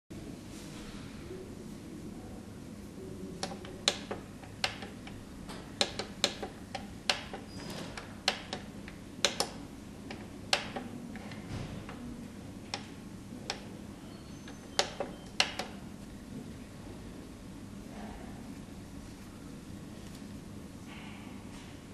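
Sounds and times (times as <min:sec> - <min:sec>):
printer keys clicking: 0:03.4 - 0:12.0, 0:14.4 - 0:15.8.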